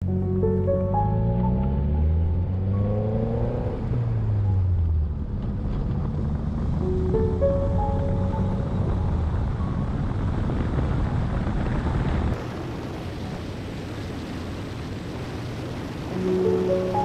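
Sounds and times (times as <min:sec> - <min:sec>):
car road noise rumble: 0:00.1 - 0:17.0
wind buffeting microphone: 0:08.6 - 0:16.9.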